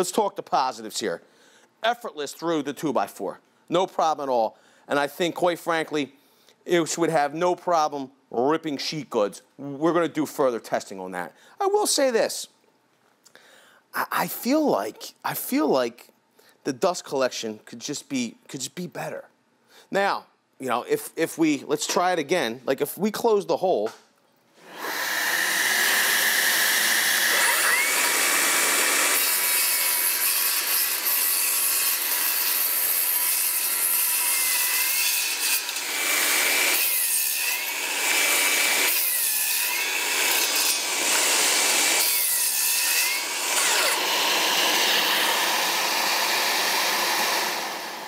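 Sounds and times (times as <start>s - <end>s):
circular saw cutting wood: 24.6s - 48.0s.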